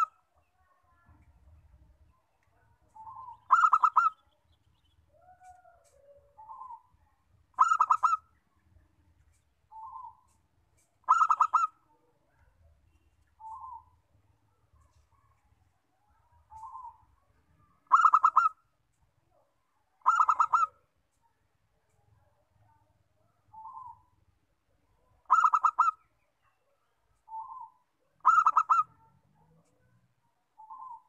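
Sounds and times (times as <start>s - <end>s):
dove cooing: 2.9s - 4.3s, 7.6s - 8.3s, 11.0s - 11.8s, 16.4s - 17.0s, 17.8s - 18.6s, 20.0s - 20.8s, 23.5s - 24.1s, 25.2s - 26.0s, 27.3s - 29.0s, 30.6s - 31.0s.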